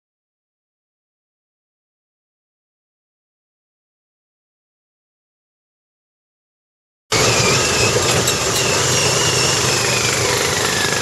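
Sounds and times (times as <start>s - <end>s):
buggy engine running: 7.1s - 11.0s.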